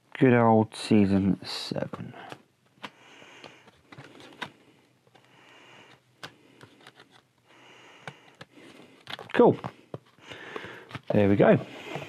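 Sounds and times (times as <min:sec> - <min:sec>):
cardboard pages rustling: 0:02.2 - 0:05.3, 0:05.9 - 0:07.4, 0:08.0 - 0:12.0.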